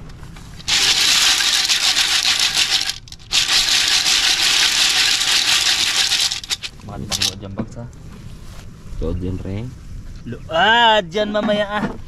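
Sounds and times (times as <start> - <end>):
snail shells rattling in metal pot: 0.6 - 7.4.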